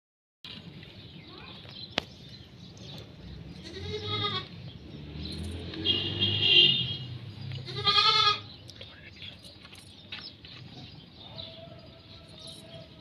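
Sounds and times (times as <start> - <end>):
goat bleating: 3.6 - 4.6, 7.6 - 8.5.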